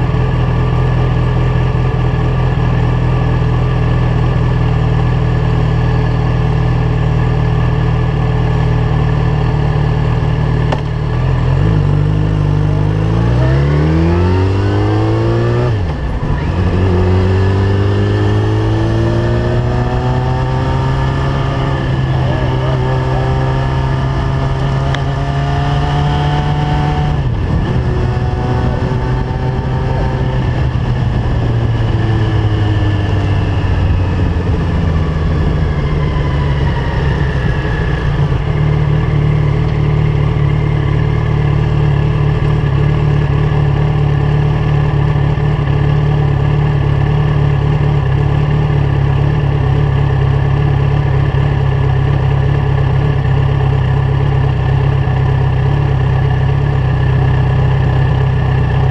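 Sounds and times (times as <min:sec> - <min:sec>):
motorcycle engine revving and idling: 0:00.0 - 0:58.9.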